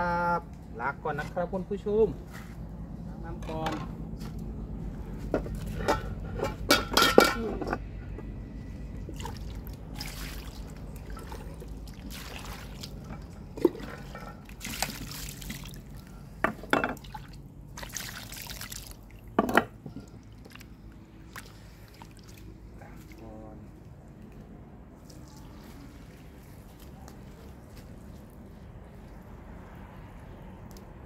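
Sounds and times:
metal bowl clanking: 0:05.7 - 0:07.9
fish sloshed by hand: 0:08.9 - 0:16.3, 0:17.0 - 0:19.4, 0:20.0 - 0:23.2, 0:24.2 - 0:30.7.

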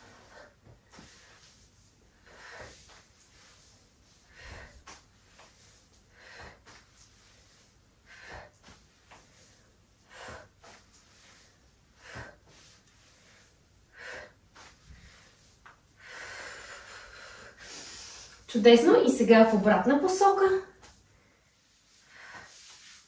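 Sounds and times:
woman breathing sharply: 0:04.2 - 0:18.5.

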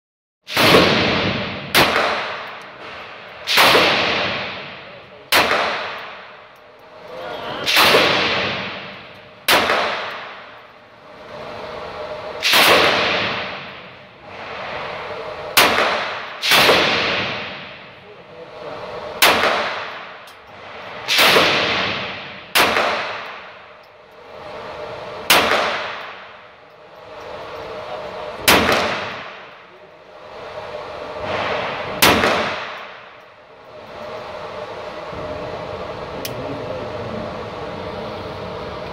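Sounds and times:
pistol shots with ringing echo: 0:00.5 - 0:02.5, 0:03.4 - 0:06.3, 0:07.6 - 0:10.5, 0:15.6 - 0:17.6, 0:19.2 - 0:20.2, 0:21.0 - 0:23.6, 0:25.3 - 0:26.3, 0:28.5 - 0:29.6, 0:32.0 - 0:33.1.

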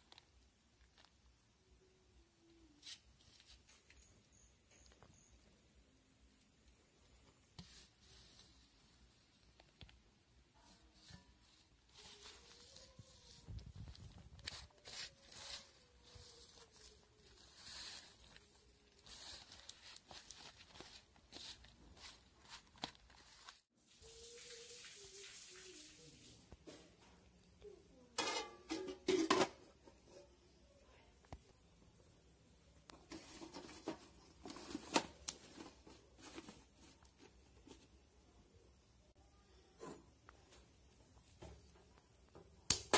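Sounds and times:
hand mixing food rustling: 0:10.6 - 0:26.5.

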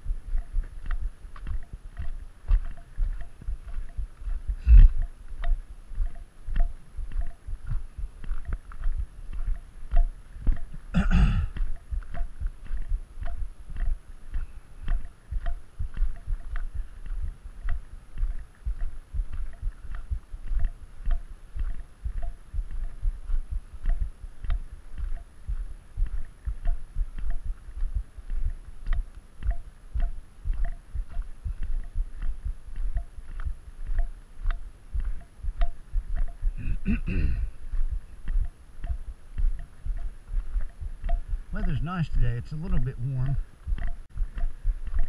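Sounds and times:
footsteps crunching on gravel: 0:37.1 - 0:45.0.

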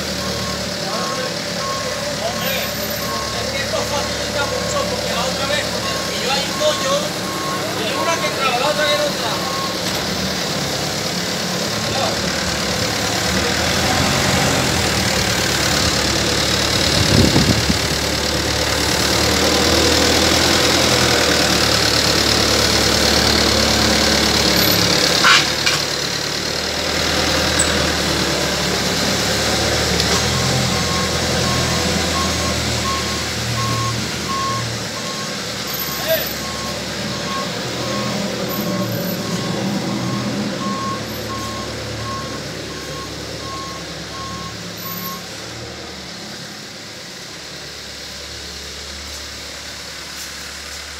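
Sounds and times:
truck engine running: 0:00.0 - 0:50.9
reversing beeper beeps: 0:00.2 - 0:09.8, 0:30.3 - 0:45.3.

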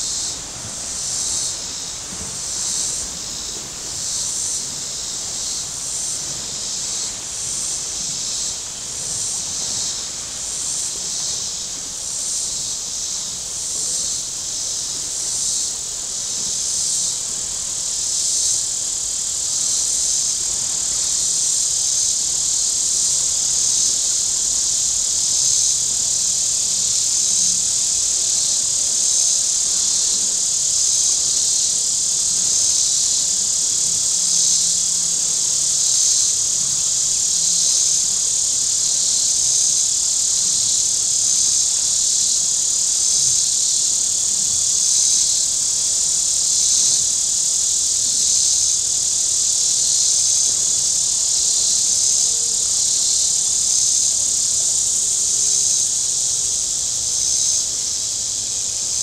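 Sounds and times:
cicadas buzzing: 0:00.0 - 0:59.0.

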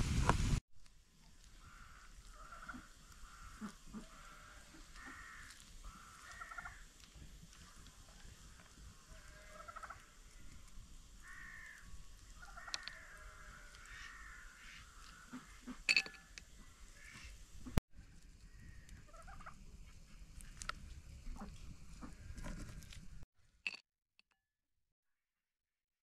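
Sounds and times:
fowl calling: 0:01.5 - 0:06.9, 0:08.4 - 0:10.4, 0:11.2 - 0:17.4, 0:18.4 - 0:19.6
light clicks of seeds handled: 0:11.7 - 0:14.0.

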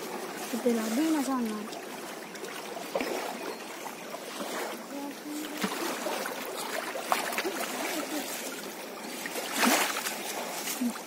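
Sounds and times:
river rushing: 0:00.0 - 0:11.0
wet net dripping and rustling: 0:00.0 - 0:11.0.

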